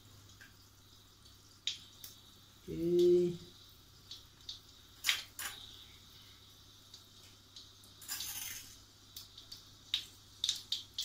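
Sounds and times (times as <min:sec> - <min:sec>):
oil crackling in a wok: 0:00.0 - 0:11.0
oil sizzling: 0:00.0 - 0:11.0.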